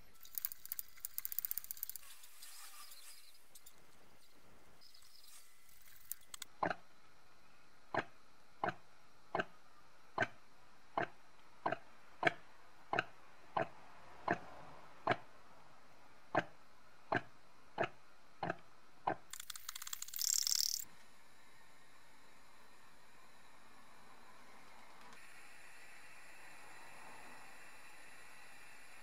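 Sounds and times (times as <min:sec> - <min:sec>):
sharp clicks of pressure lamp: 0:00.3 - 0:02.0.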